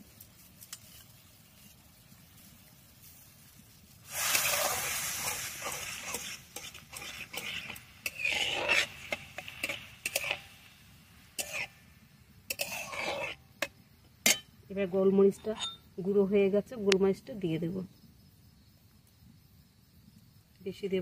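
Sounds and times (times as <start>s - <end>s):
sizzling in a wok: 0.0s - 17.0s
metal spatula scraping wok: 4.1s - 14.5s, 15.3s - 15.8s.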